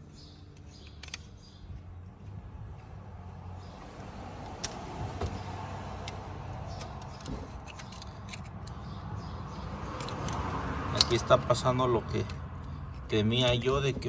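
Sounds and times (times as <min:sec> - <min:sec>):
metallic clicks of hand tools: 0:00.5 - 0:01.4, 0:06.0 - 0:08.8, 0:10.0 - 0:11.2.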